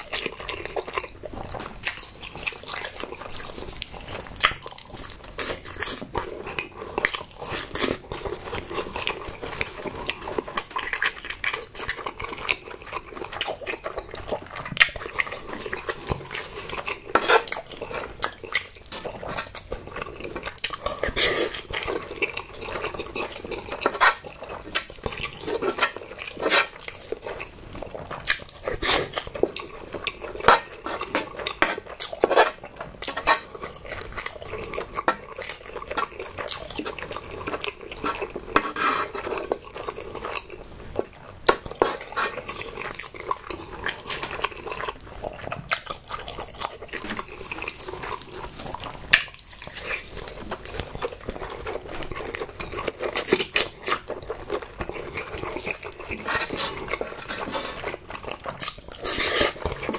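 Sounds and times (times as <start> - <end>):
wooden spoon scraping pan: 17.1 - 17.5, 38.0 - 39.4, 55.7 - 57.8.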